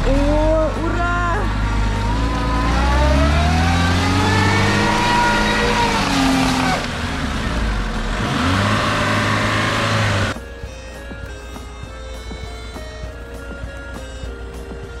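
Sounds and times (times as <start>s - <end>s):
car engine revving: 0.0s - 10.4s.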